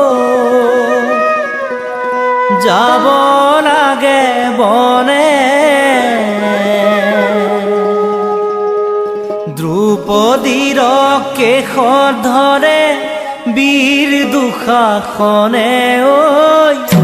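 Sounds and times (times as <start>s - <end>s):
person singing ornamented notes: 0.0s - 17.0s.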